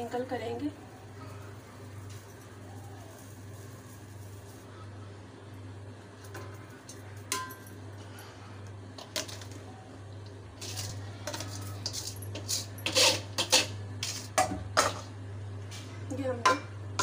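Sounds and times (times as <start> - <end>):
rice sliding: 1.2 - 5.2, 10.5 - 15.0
metal clinking on pot: 6.3 - 7.8.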